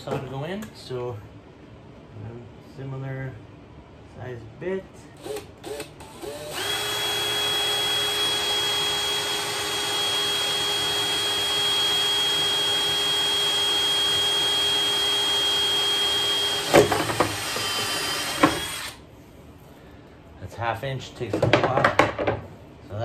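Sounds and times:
cordless drill whining: 5.2s - 19.0s.

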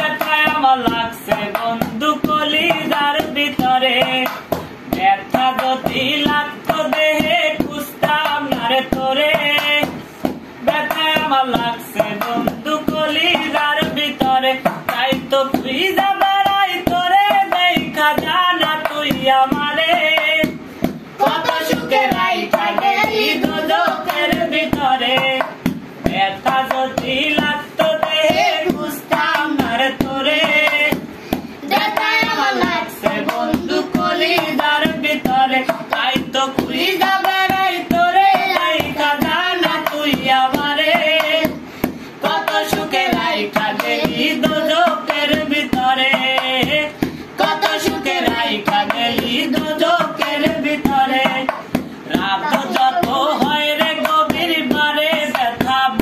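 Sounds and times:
man singing folk song: 0.0s - 31.1s, 32.0s - 56.0s
hand drumming on metal pot: 0.0s - 56.0s
child singing: 21.2s - 24.9s, 28.0s - 30.2s, 31.6s - 35.7s, 36.6s - 40.6s, 47.4s - 51.4s, 52.1s - 54.9s.

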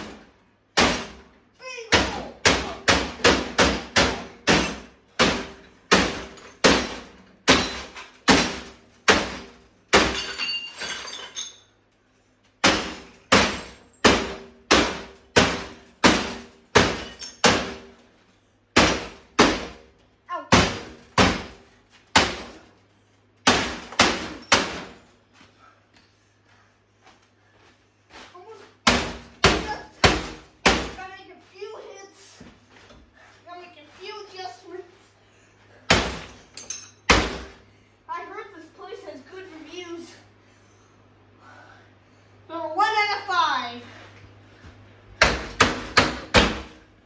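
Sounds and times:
hammer striking television: 1.9s - 10.2s, 12.6s - 17.8s, 18.8s - 19.8s, 23.4s - 24.9s, 28.8s - 31.0s, 45.2s - 46.7s.

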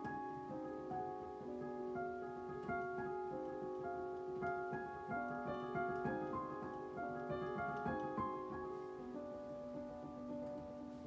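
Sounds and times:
digital piano playing: 0.0s - 11.0s.

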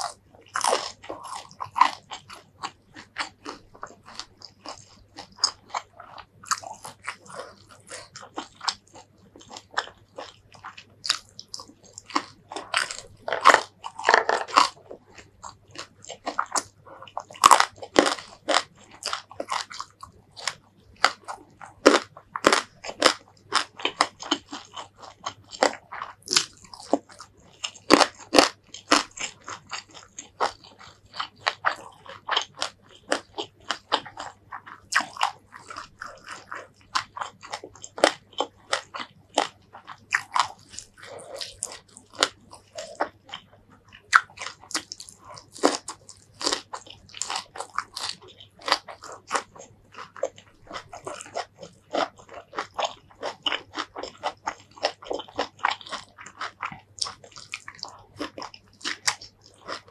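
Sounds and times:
crunching and chewing food: 0.0s - 59.9s.

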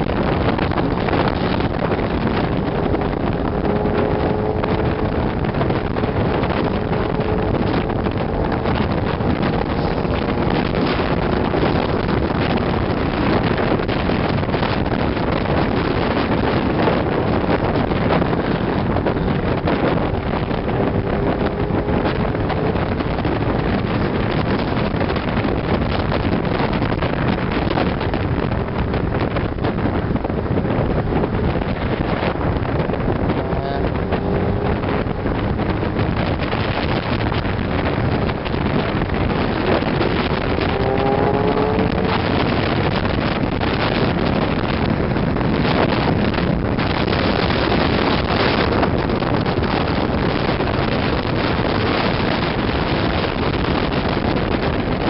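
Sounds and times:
car road noise: 0.0s - 55.0s
wind on microphone: 0.0s - 55.0s
faint engine note: 1.4s - 11.4s, 33.0s - 37.3s, 39.5s - 43.2s.

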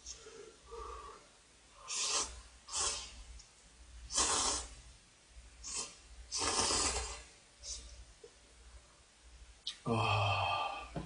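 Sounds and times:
person slurping noodles: 4.1s - 4.7s, 5.6s - 7.3s.

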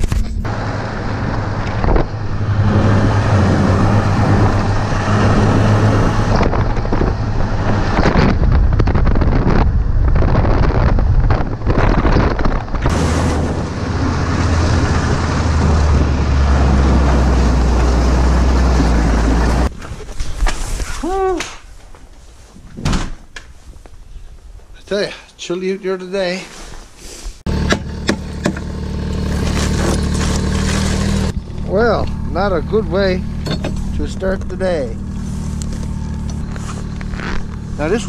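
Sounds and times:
wind rushing over microphone: 0.0s - 21.0s
snowmobile engine running: 0.1s - 9.6s, 12.9s - 19.7s, 27.5s - 38.0s.

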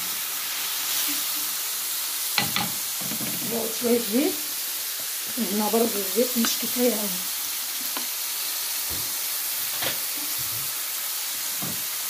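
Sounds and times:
liver sizzling in hot oil: 0.0s - 12.0s.

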